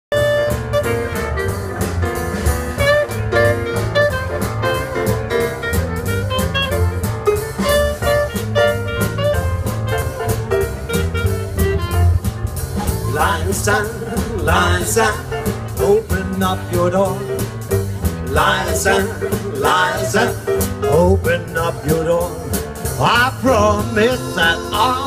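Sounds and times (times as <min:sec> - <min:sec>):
clarinet melody: 0:00.1 - 0:14.7
double bass: 0:00.1 - 0:25.0
drum kit steady beat: 0:00.1 - 0:25.0.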